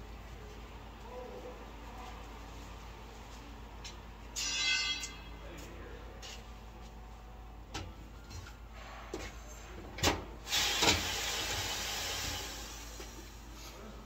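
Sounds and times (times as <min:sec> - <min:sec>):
compressed air hissing: 0:10.4 - 0:13.5.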